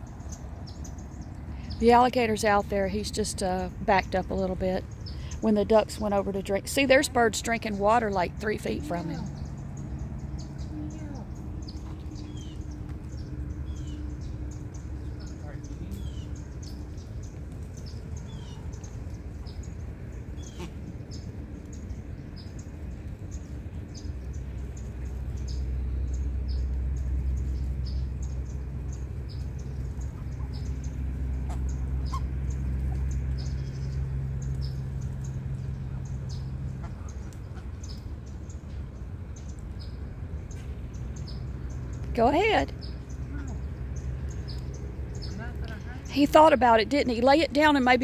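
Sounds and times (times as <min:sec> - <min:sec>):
birds chirping: 0:00.0 - 0:48.0
low steady drone: 0:00.0 - 0:48.0.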